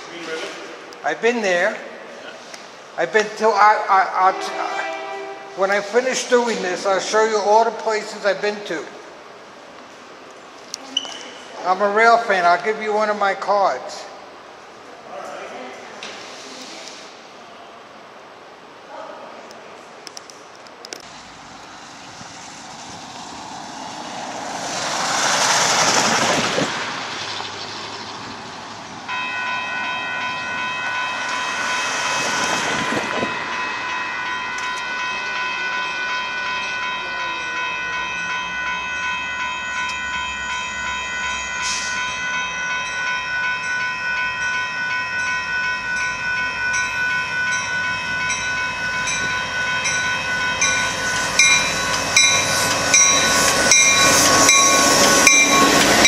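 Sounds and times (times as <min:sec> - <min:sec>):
crossing warning bell ringing: 0:03.0 - 0:08.8, 0:29.1 - 0:56.0
broad rushing swells: 0:21.1 - 0:56.0.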